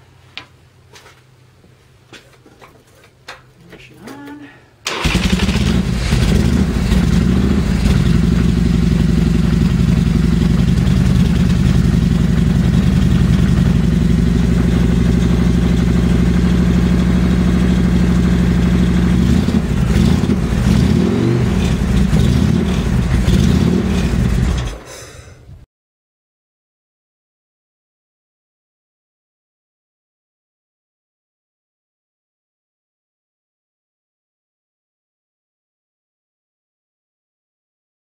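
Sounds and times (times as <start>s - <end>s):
motorcycle engine idling: 5.0s - 24.8s.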